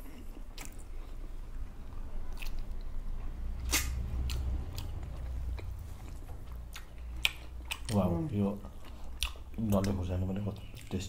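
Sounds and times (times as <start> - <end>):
steady low hum: 0.0 - 11.0
chewing and wet mouth smacks: 0.2 - 1.3, 2.2 - 3.0, 3.6 - 8.0, 8.6 - 11.0.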